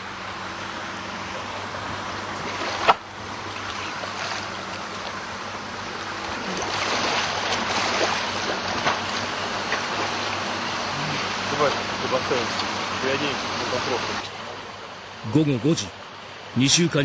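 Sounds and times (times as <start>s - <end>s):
water splashing and lapping: 1.2s - 14.7s.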